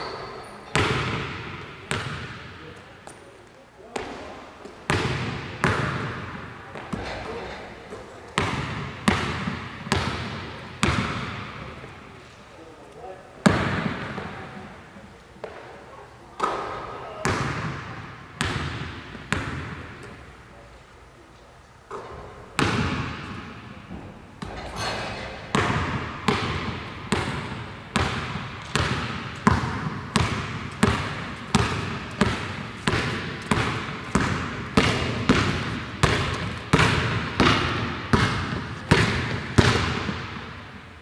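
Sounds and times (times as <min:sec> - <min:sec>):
basketball bouncing on hardwood floor: 0:00.0 - 0:02.4, 0:04.9 - 0:07.3, 0:08.4 - 0:11.6, 0:18.4 - 0:20.0, 0:21.9 - 0:24.9, 0:25.5 - 0:40.8.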